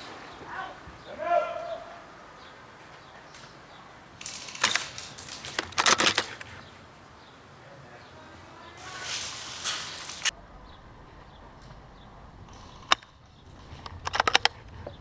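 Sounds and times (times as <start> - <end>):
rifle handling clicks and clatter: 4.2 - 6.6, 12.8 - 14.6.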